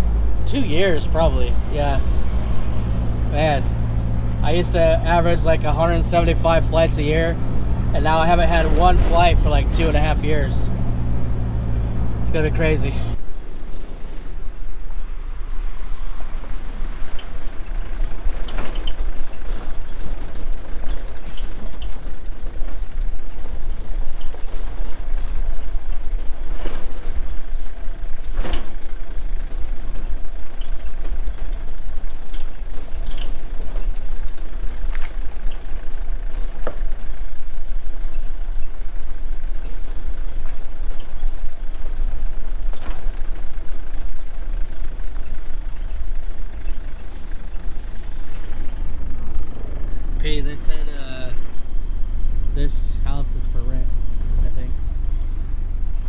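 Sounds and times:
car rumbling on dirt track: 0.0s - 56.0s.

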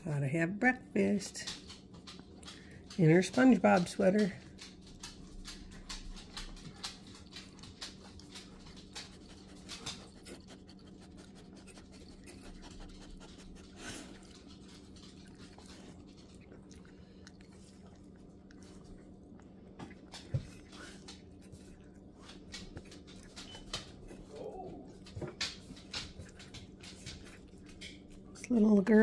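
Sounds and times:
faint steady hum: 0.0s - 29.0s
puppy chewing from metal bowl: 1.0s - 29.0s.

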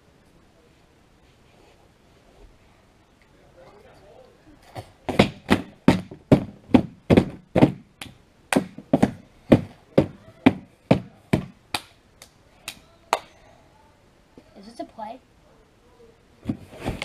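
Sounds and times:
hands slapping cardboard box: 5.1s - 11.9s.

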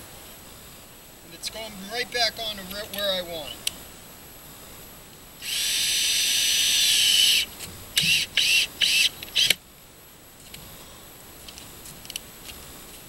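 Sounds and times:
cordless drill driving screw: 5.4s - 9.6s.

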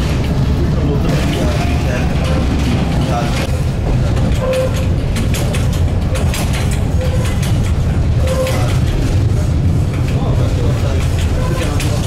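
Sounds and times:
tram rumbling on track: 0.0s - 12.0s
clicks and rattles: 4.1s - 9.1s.

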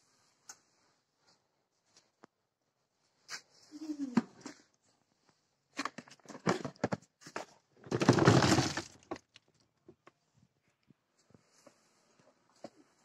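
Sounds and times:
oranges tumbling into plastic crate: 5.8s - 9.4s
knocks of fruit and bucket: 7.8s - 9.3s.

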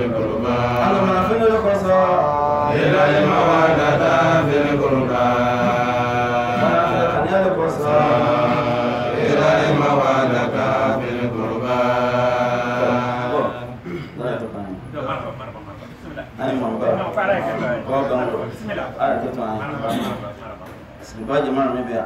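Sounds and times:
man chanting melodically: 0.0s - 13.8s.

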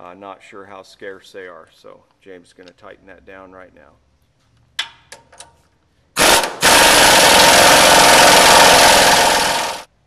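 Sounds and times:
pneumatic impact wrench hammering: 6.2s - 9.9s.

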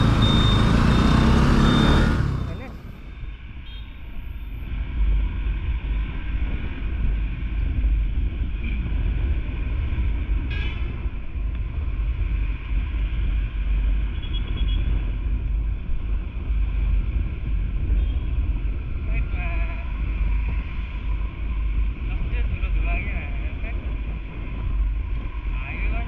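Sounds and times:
motorcycle engine running: 0.0s - 3.0s
wind rumble on microphone: 2.3s - 26.0s.

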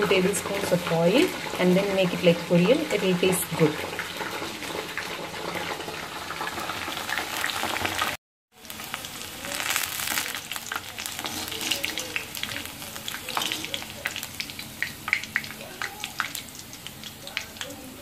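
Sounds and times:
deep-frying sizzle with crackles: 0.0s - 18.0s.

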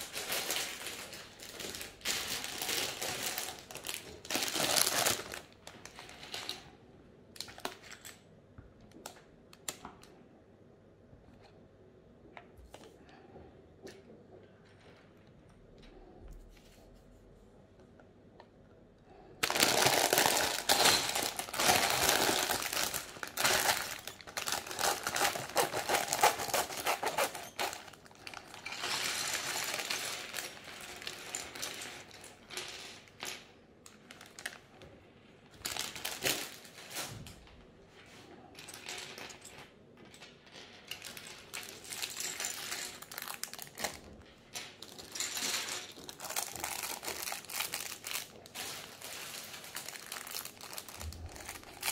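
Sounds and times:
plastic bag crinkling: 0.0s - 6.7s, 19.4s - 33.2s, 35.5s - 37.2s, 41.0s - 51.9s.

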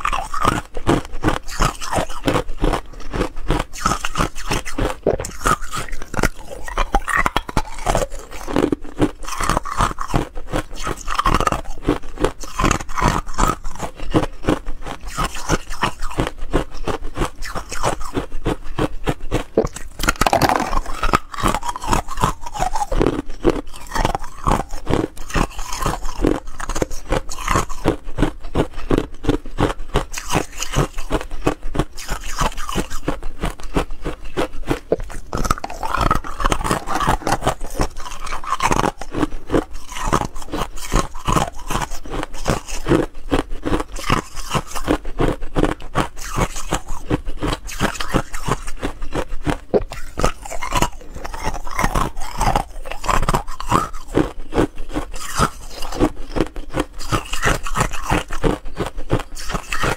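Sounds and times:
ice shells crunching: 19.6s - 27.9s, 34.4s - 42.8s.

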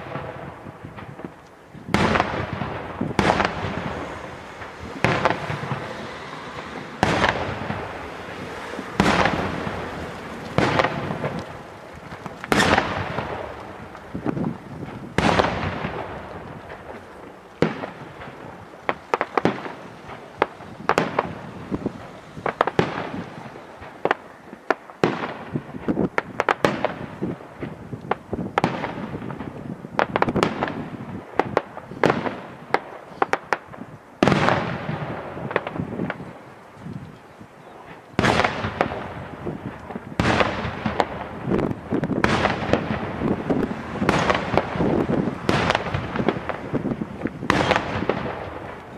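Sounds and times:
fireworks bangs and crackling: 0.0s - 48.9s.

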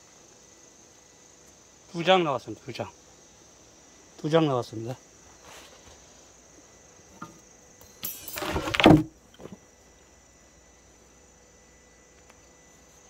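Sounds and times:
high insect chirr: 0.0s - 13.0s
scraping rustle: 8.2s - 9.6s.

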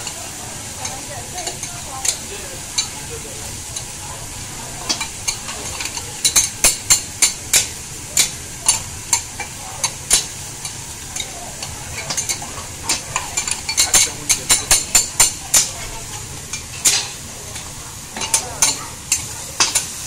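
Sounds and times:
seafood sizzling in oil: 0.0s - 20.0s
metal spatulas clacking on griddle: 0.8s - 2.2s, 4.8s - 20.0s.

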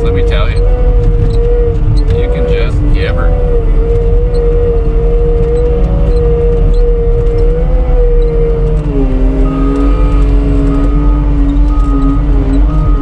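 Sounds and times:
diesel engine and hydraulics whining: 0.0s - 13.0s.

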